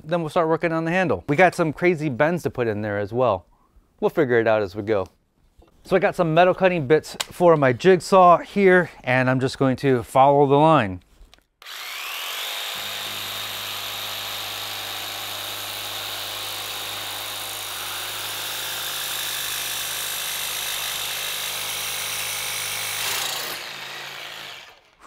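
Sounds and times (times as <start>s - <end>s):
jigsaw cutting sheet metal: 11.6s - 25.0s.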